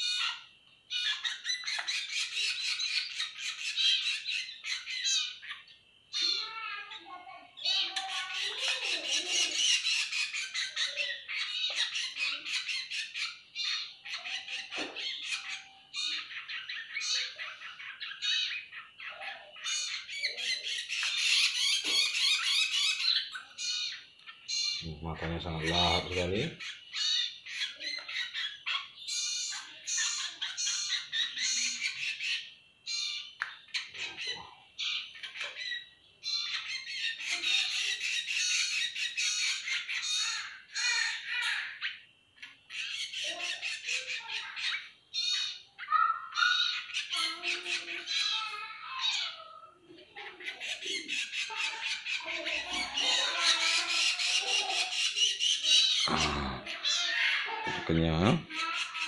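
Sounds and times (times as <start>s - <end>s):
young birds begging squawks: 0.0s - 59.0s.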